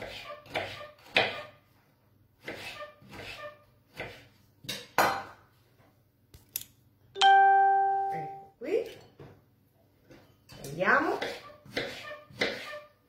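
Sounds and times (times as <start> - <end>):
knife slicing orange: 11.2 - 12.8.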